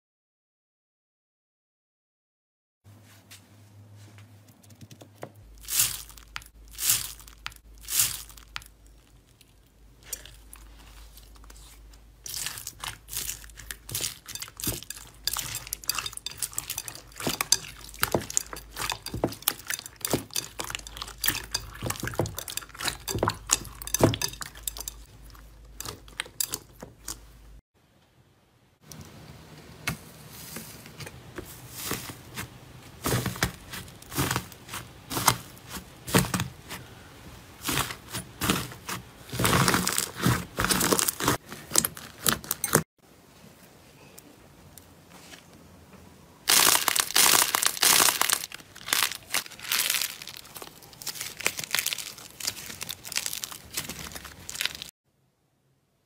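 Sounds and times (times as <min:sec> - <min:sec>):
bead slime crackling: 0:05.4 - 0:27.2, 0:46.5 - 0:54.9
crusted slime crackling: 0:05.5 - 0:27.2, 0:46.5 - 0:54.9.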